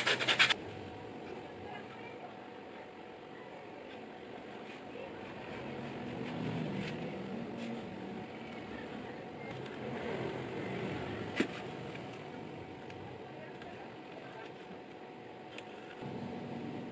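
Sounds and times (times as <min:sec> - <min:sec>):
leather edge beveler scraping: 0:00.0 - 0:00.6.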